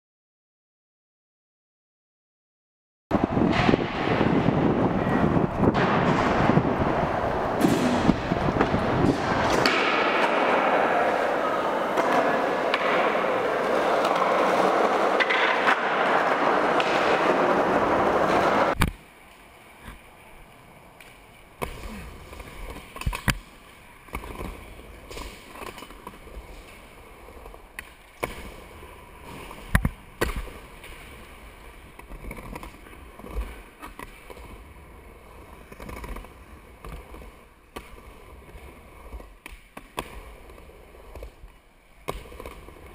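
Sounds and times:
skateboard wheels rolling on wood: 0:03.1 - 0:42.9
skateboard clacking on deck: 0:07.5 - 0:19.0.

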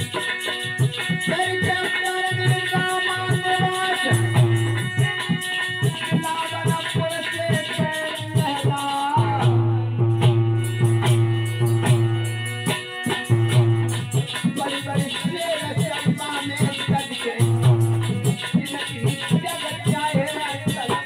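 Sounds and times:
jingling small cymbals: 0:00.0 - 0:09.4, 0:10.6 - 0:21.0
hand drum beats: 0:00.0 - 0:21.0
harmonium melody: 0:00.0 - 0:21.0.

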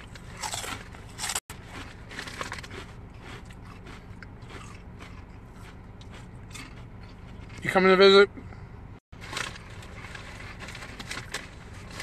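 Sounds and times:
person chewing crunchy food: 0:00.0 - 0:07.7
steady low hum: 0:00.0 - 0:12.0.

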